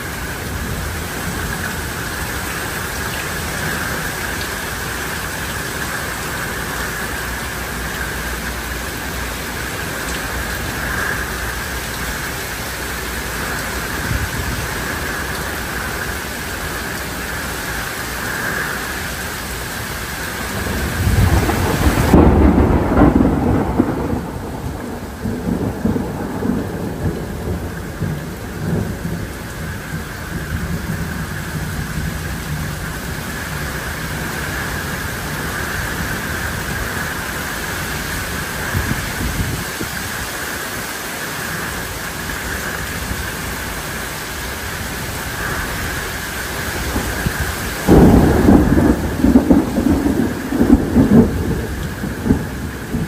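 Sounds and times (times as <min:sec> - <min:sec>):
heavy rain: 0:00.0 - 0:53.0
thunder rolling: 0:20.4 - 0:40.2, 0:45.0 - 0:53.0.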